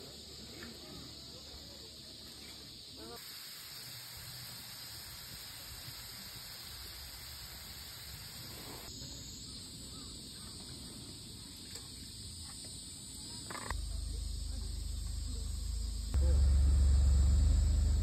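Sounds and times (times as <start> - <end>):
oil sizzling around frying fries: 3.1 - 8.9.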